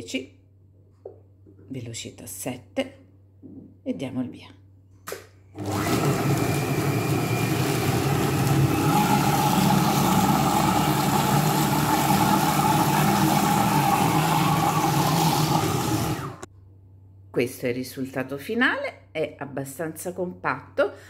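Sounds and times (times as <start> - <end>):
food processor motor whirring: 5.6 - 16.5.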